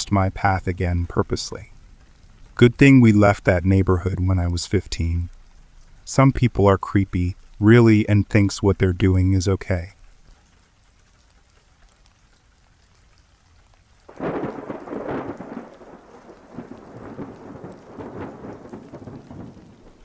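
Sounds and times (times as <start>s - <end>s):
rain: 0.0s - 20.0s
thunder clap rolling: 14.1s - 20.0s.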